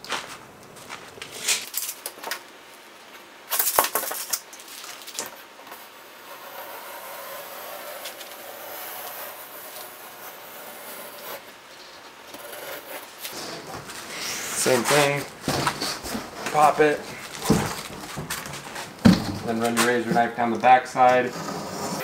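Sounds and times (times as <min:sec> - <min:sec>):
tape measure clattering: 0:03.5 - 0:05.4
utility knife cutting foam: 0:06.3 - 0:11.5.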